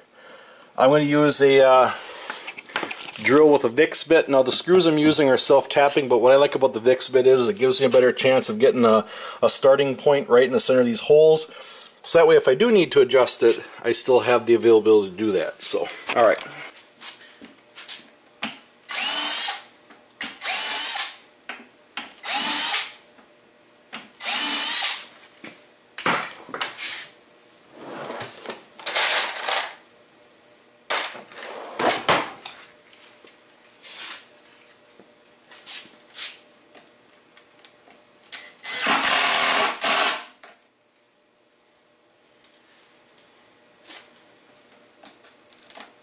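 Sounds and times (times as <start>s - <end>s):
cordless drill bursts: 18.9s - 19.7s, 20.4s - 21.2s, 22.2s - 23.0s, 24.2s - 25.1s, 38.4s - 40.4s.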